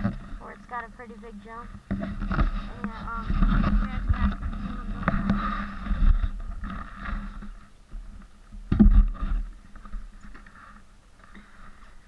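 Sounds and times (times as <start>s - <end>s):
wind on microphone: 1.9s - 8.1s.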